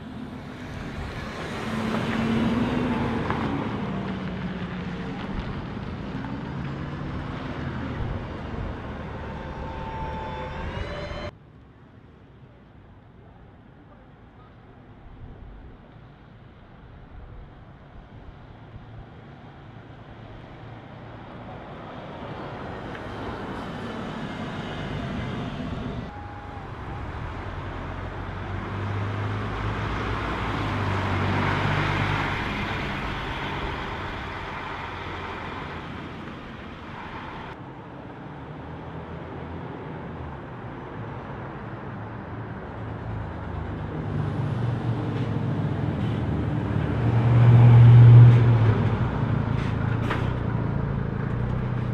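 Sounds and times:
buses driving by: 0.0s - 51.9s.

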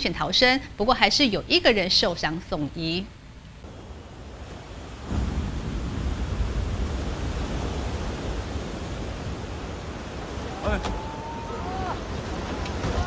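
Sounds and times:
heavy surf breaking: 3.6s - 13.0s.

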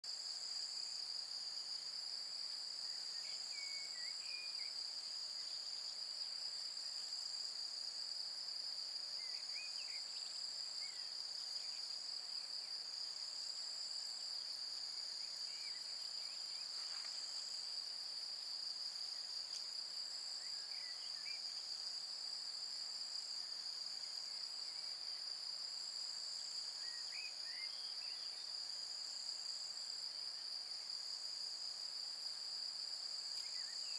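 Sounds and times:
high-pitched insect chorus: 0.1s - 33.9s.

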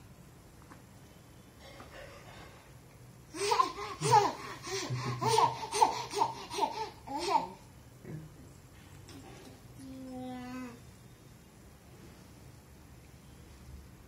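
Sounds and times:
baby laughing: 3.4s - 7.6s.

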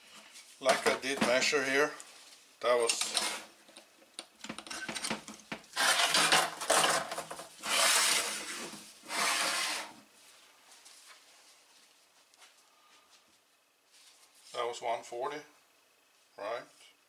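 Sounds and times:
scraping rubbing rustles: 5.7s - 11.6s.

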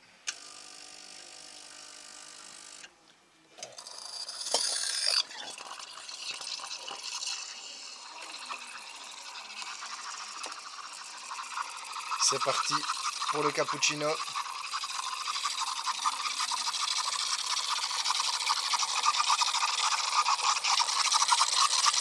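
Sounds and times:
steam wand hissing: 6.4s - 22.0s.

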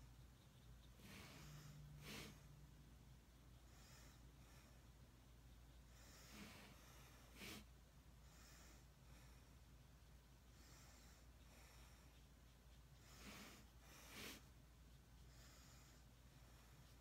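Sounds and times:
low room hum: 0.0s - 17.0s
short sniff: 0.8s - 2.6s, 5.9s - 9.0s, 13.0s - 14.6s
breaths through the nose: 1.0s - 2.5s, 5.9s - 7.7s, 13.0s - 14.6s.

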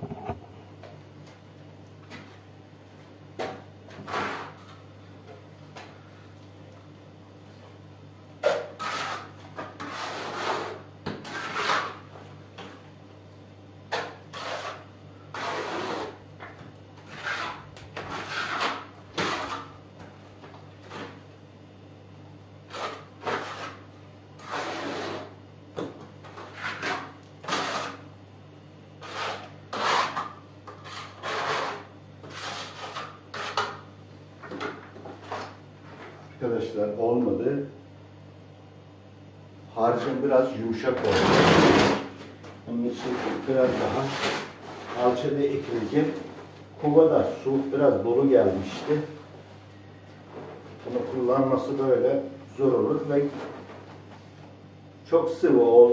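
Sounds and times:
trowel scraping mortar: 4.1s - 4.6s, 8.4s - 12.0s, 13.9s - 16.2s, 17.1s - 19.7s, 22.7s - 23.8s, 24.4s - 25.3s, 26.3s - 28.0s, 29.0s - 33.8s.

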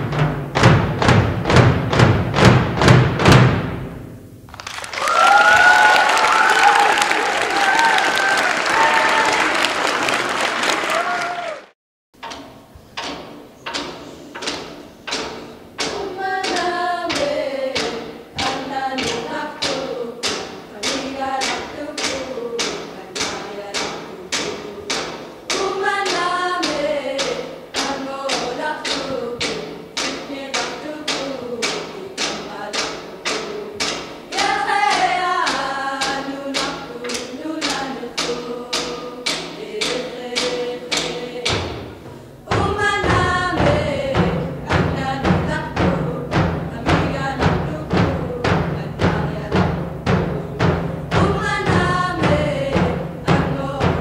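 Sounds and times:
sharp knocks beat: 0.0s - 4.4s, 12.2s - 54.0s
group singing in unison: 15.1s - 54.0s.

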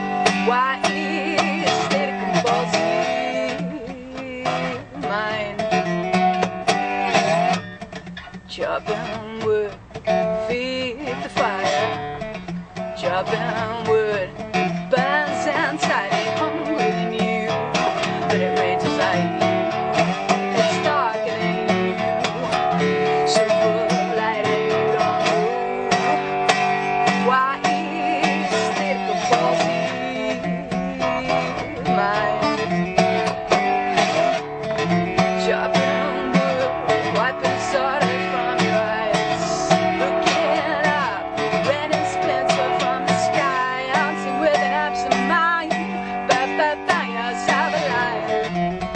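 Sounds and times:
resonator guitar picking: 0.0s - 48.9s.

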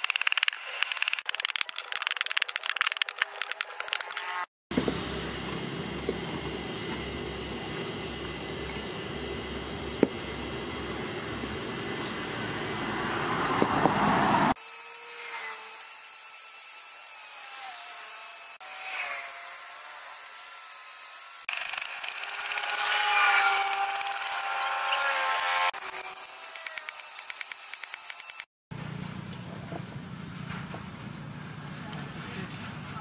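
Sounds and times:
angle grinder sanding wood: 14.5s - 28.5s.

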